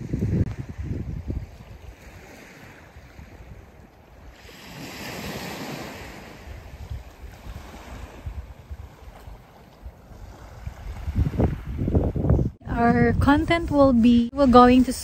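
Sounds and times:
wind buffeting microphone: 0.0s - 15.0s
waves washing onto stony shore: 1.4s - 11.7s.

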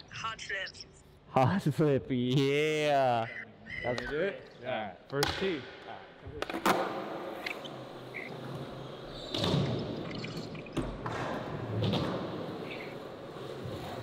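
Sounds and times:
skateboard wheels rolling on concrete: 10.8s - 14.0s.

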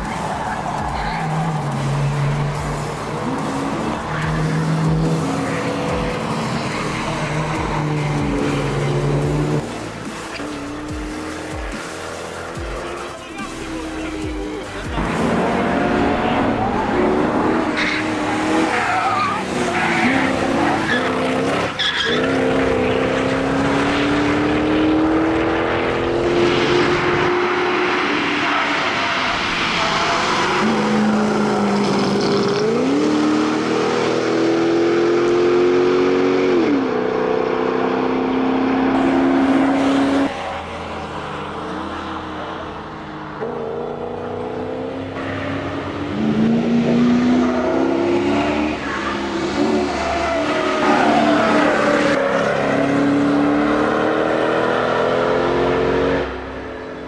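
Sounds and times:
car engine revving: 0.0s - 57.0s
tyres squealing: 15.8s - 22.6s.

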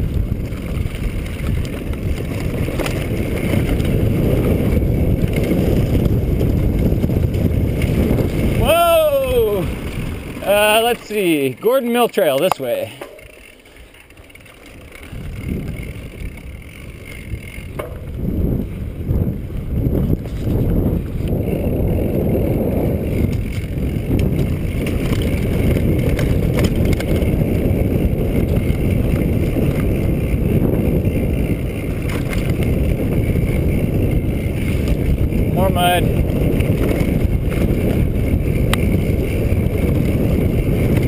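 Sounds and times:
wind rush on microphone: 0.0s - 13.0s, 14.7s - 41.0s
bike rattling: 0.0s - 41.0s
knobby tyres rolling on dirt: 0.0s - 41.0s.

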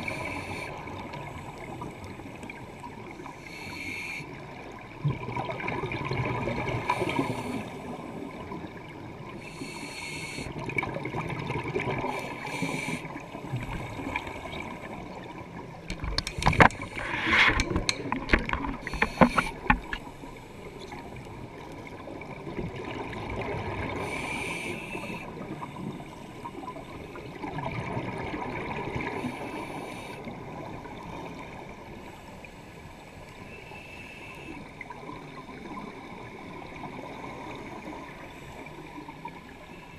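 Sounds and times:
regulator hissing inhalations: 3.4s - 4.3s, 9.4s - 10.6s, 12.2s - 13.1s, 18.9s - 19.7s, 24.0s - 25.3s.

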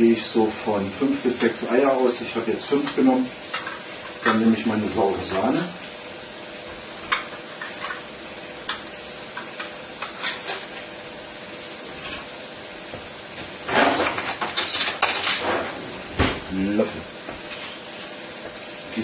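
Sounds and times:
food frying in a pan: 0.0s - 19.0s
kitchen utensils clattering: 2.7s - 5.7s, 7.0s - 8.1s, 8.7s - 10.8s, 13.4s - 18.1s.

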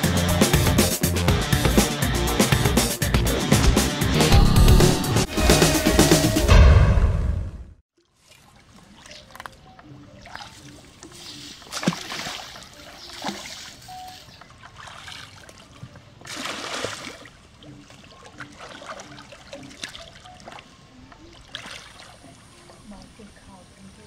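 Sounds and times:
person wading through water: 8.0s - 22.9s
loud water splashes: 11.5s - 13.9s, 14.6s - 17.4s.

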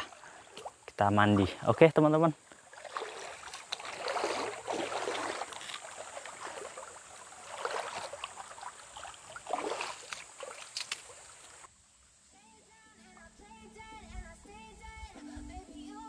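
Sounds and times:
wading through stream water: 0.0s - 11.7s.

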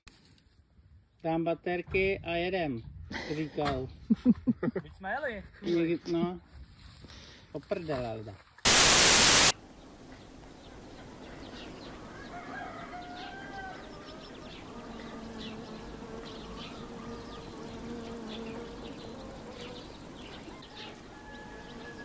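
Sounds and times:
loud static hiss: 8.6s - 9.8s
insect buzz: 8.7s - 9.5s, 12.5s - 20.6s
small birds chirping: 8.8s - 22.0s.

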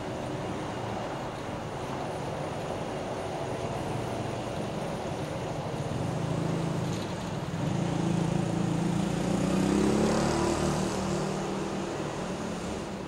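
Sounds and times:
railcar diesel engines running: 0.0s - 9.0s.

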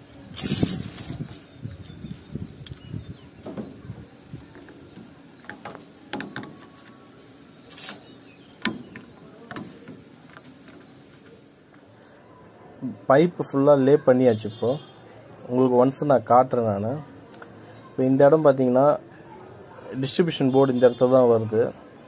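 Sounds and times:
plastic pipes knocking and clicking: 5.4s - 6.6s
short scraping hiss: 7.7s - 8.2s.

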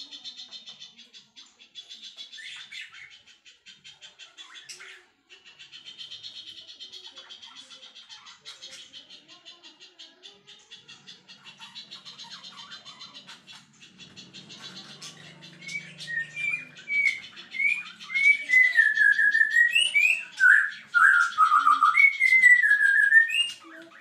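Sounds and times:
high bird twittering: 0.0s - 24.0s
whistled bird song: 11.6s - 24.0s.

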